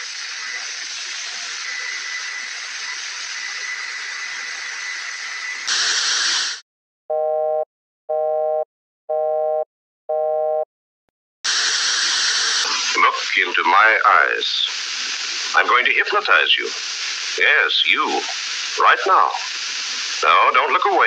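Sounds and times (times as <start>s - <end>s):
steady hiss: 11.5s - 21.0s.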